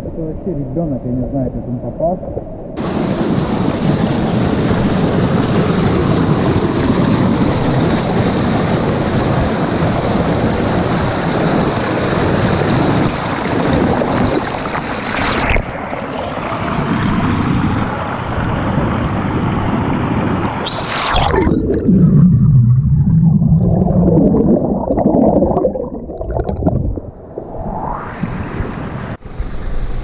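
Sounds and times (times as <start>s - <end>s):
fast river water rushing: 2.8s - 17.4s.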